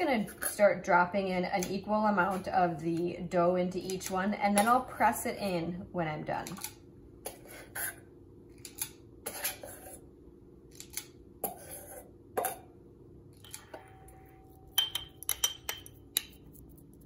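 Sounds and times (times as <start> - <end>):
cookie scoop scraping metal bowl: 9.2 - 10.0, 11.4 - 12.1
metal spoon clinking on glass jars: 13.4 - 16.4.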